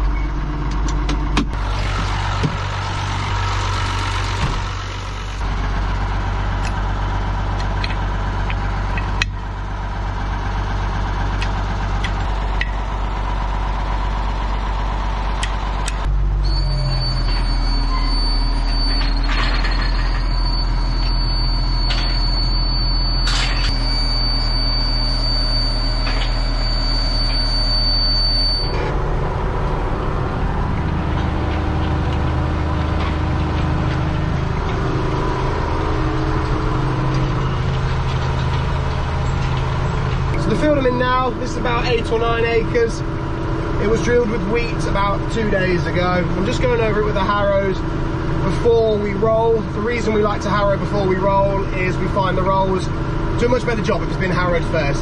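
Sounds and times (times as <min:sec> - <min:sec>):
tractor diesel engine running: 0:00.0 - 0:55.0
high-pitched whine: 0:15.9 - 0:43.1.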